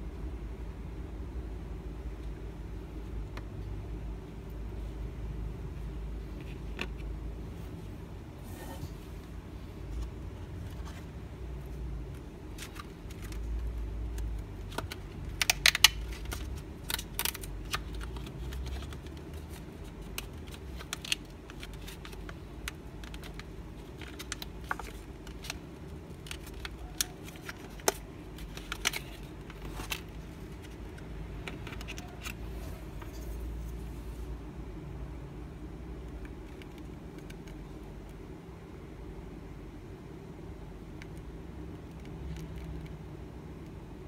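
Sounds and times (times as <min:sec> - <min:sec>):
low steady hum: 0:00.0 - 0:44.0
plastic blister pack crackling: 0:12.2 - 0:32.4.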